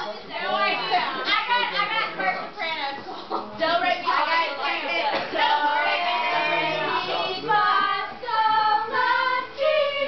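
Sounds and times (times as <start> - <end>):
women singing together: 3.3 - 10.0.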